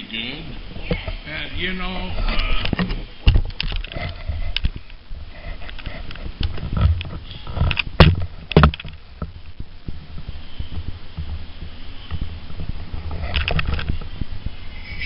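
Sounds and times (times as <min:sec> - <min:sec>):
camera handling rumble: 0:02.3 - 0:11.4, 0:12.1 - 0:14.6.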